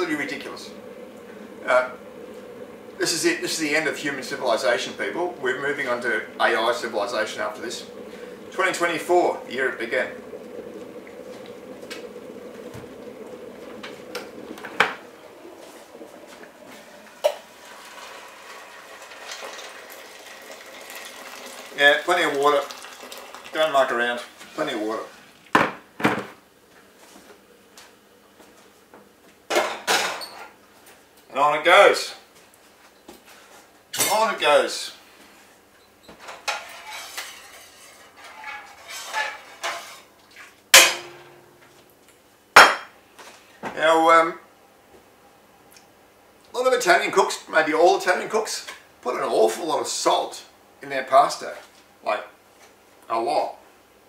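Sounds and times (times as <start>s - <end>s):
water poured into a steel pot: 1.3s - 24.4s
loud metallic clang: 40.8s - 41.6s.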